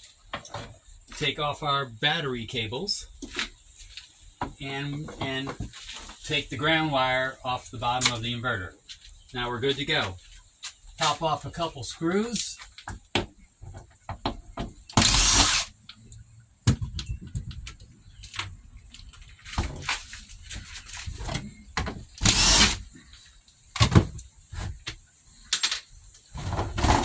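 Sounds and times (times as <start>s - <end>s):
knocks and rattles of handling: 12.6s - 14.9s, 16.6s - 22.2s
drill-driver motor running: 15.0s - 15.7s, 22.2s - 22.8s.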